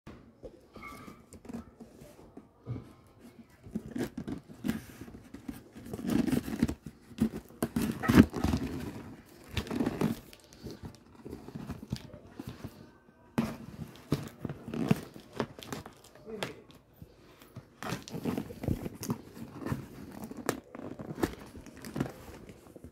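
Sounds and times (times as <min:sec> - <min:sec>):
cardboard rustling and scraping: 0:00.8 - 0:22.9
scissors cutting cardboard: 0:03.6 - 0:12.2
packing tape tearing: 0:03.8 - 0:12.1.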